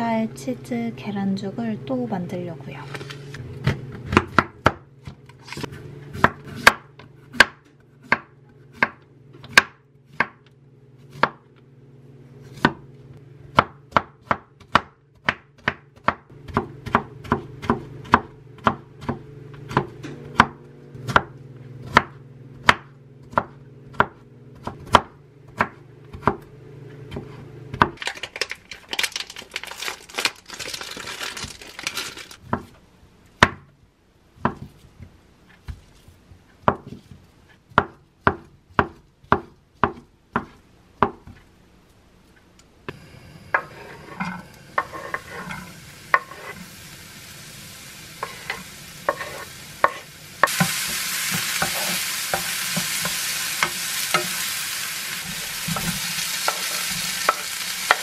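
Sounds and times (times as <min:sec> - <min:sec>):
knife chopping on wooden board: 0:03.6 - 0:10.5, 0:11.1 - 0:11.4, 0:12.5 - 0:12.8, 0:13.5 - 0:26.5, 0:33.4 - 0:33.7, 0:34.4 - 0:34.8, 0:36.6 - 0:41.4, 0:46.1 - 0:46.6
plastic wrapper crinkling: 0:28.0 - 0:32.4.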